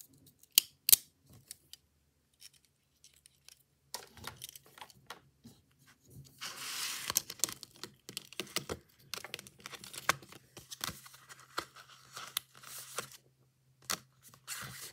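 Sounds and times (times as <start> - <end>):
plastic sliding on plastic: 5.5 - 7.6.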